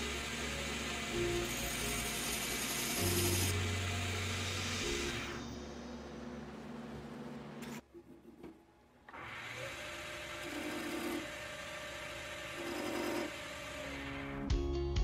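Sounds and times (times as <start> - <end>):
wood lathe running: 0.0 - 5.4, 9.1 - 14.2.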